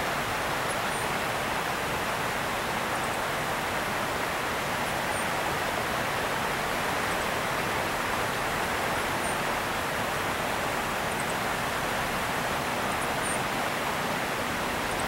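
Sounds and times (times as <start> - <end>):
rushing water: 0.0 - 15.0.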